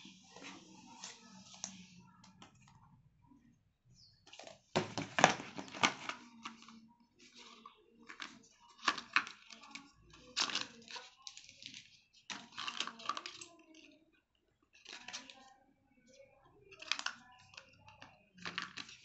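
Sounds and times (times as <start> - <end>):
paper rustling: 0.0 - 2.0.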